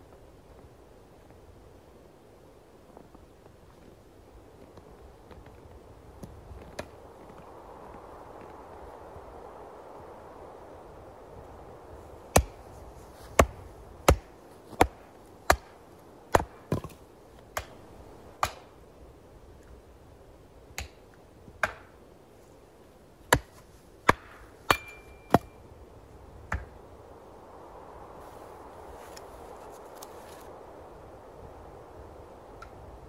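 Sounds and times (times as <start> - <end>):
hatchet chopping firewood: 12.3 - 12.6, 13.4 - 17.8, 18.4 - 18.7, 21.6 - 21.9, 23.2 - 25.6.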